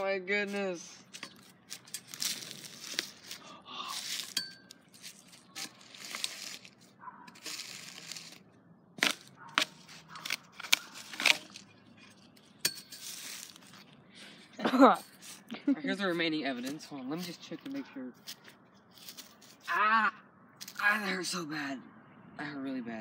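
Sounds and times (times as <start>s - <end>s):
plastic pipe scraping through leaves: 0.0s - 8.4s, 9.0s - 14.0s, 15.0s - 15.5s.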